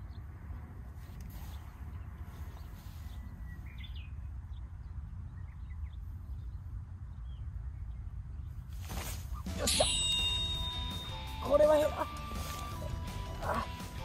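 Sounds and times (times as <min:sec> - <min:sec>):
bird chirps: 0:01.4 - 0:08.7.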